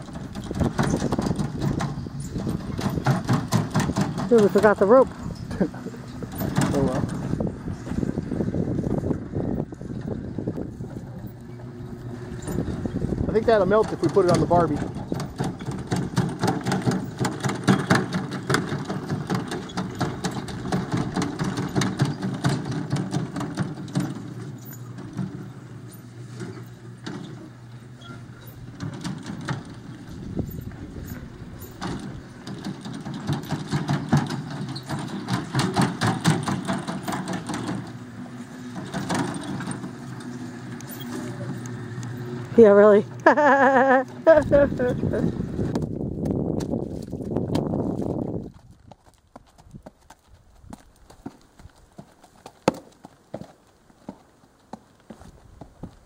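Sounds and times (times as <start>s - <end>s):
rattling and clicking: 0.0s - 7.4s, 12.3s - 27.5s, 28.4s - 38.0s, 38.7s - 43.4s
vehicle engine running: 0.0s - 49.0s.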